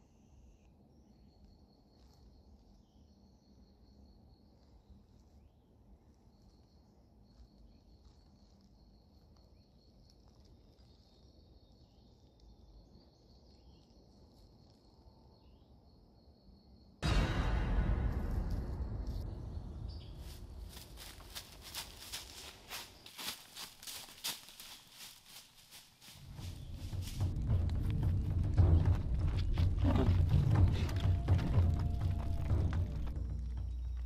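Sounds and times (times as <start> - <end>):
insect chirping: 0.0 - 17.0, 18.6 - 27.2.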